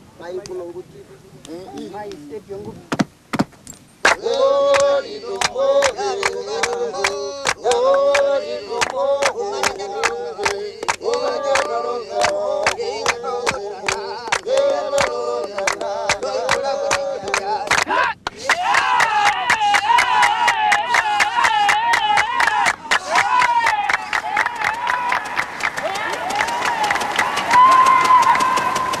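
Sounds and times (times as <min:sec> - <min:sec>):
handclaps keeping a beat: 0:04.0 - 0:29.0
group of voices singing: 0:04.1 - 0:18.7.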